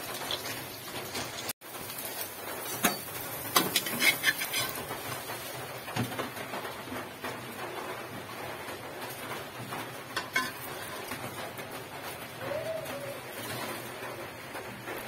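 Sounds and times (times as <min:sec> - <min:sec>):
oil sizzling in a wok: 0:00.0 - 0:15.0
metal utensil knocking cookware: 0:10.2 - 0:11.2.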